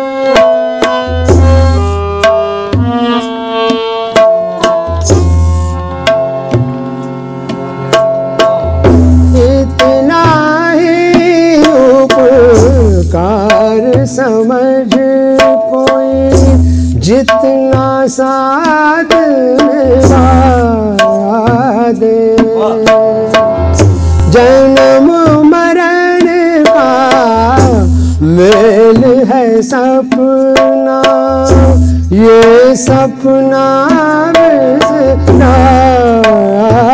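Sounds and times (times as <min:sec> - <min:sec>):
harmonium chords: 0:00.0 - 0:36.9
tabla bass strokes: 0:00.0 - 0:36.9
man singing: 0:09.3 - 0:23.6, 0:24.2 - 0:36.9.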